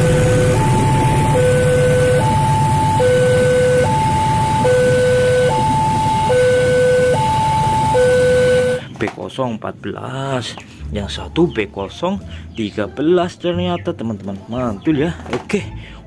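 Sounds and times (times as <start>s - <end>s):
two-tone level crossing alarm: 0.0s - 8.9s
freight train rumbling: 0.0s - 9.0s.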